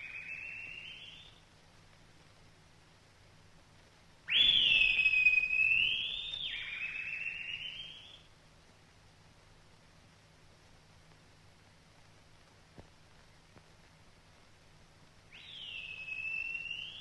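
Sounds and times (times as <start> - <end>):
bird of prey whistled cry: 0.0 - 1.4, 4.3 - 8.3, 15.3 - 17.0.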